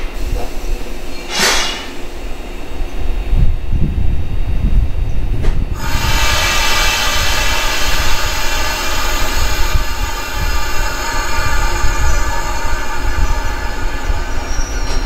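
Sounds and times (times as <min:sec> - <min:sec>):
train equipment rumble: 0:00.0 - 0:15.0
loud hiss with whistling tones: 0:05.8 - 0:15.0.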